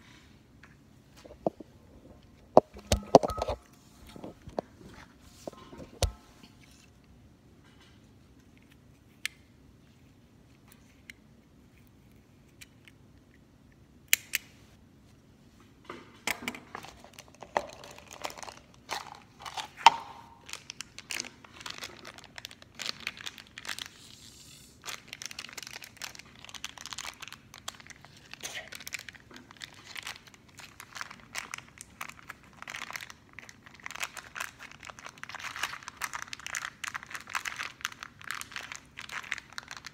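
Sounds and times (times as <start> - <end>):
plastic wrapper crinkling: 16.7 - 39.9.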